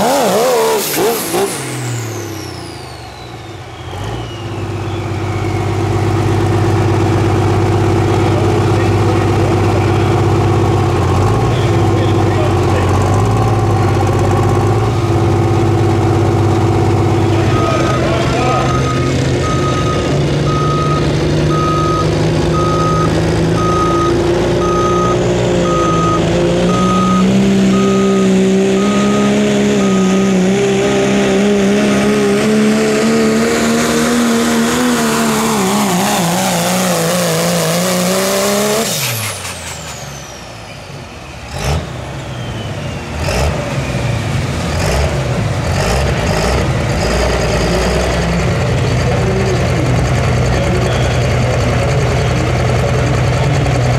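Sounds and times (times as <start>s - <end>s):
diesel truck engine at full throttle: 0.0s - 53.9s
turbo whistle winding down: 0.1s - 6.5s, 38.6s - 44.0s
repeated beep: 17.4s - 31.1s.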